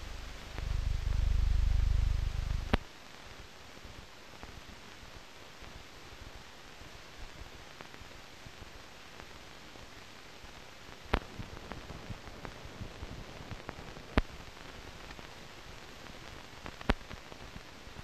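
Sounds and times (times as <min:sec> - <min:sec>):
film soundtrack hiss and crackle: 0:00.0 - 0:18.0.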